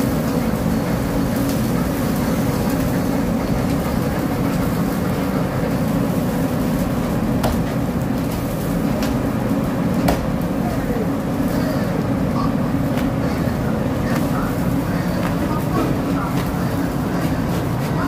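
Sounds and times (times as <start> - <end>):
low mechanical rumble: 0.0 - 18.0.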